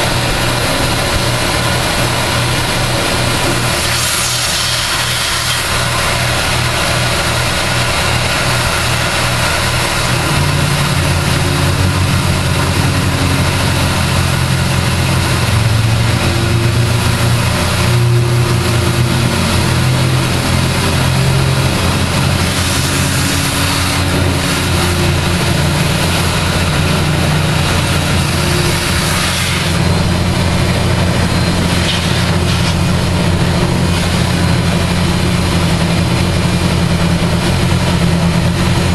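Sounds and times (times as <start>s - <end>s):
milling machine cutting metal: 0.0s - 38.9s
motor hum: 0.0s - 38.9s.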